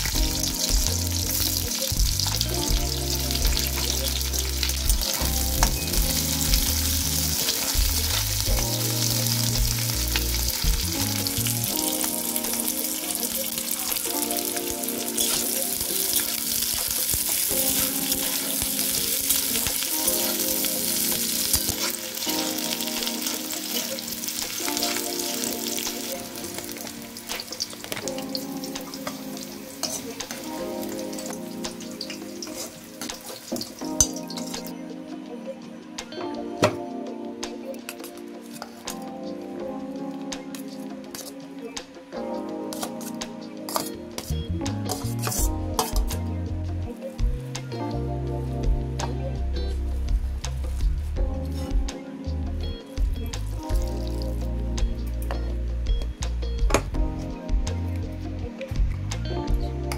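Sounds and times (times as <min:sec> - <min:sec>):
onions sizzling in oil: 0:00.0 - 0:34.8
spoon scraping metal pan: 0:42.7 - 0:44.3.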